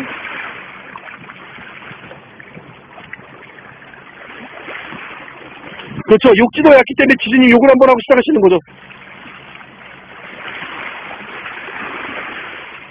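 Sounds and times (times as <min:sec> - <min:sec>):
small splashes: 0:00.0 - 0:06.1, 0:08.7 - 0:12.9
sea water washing against boulders: 0:00.0 - 0:06.7, 0:08.3 - 0:12.9.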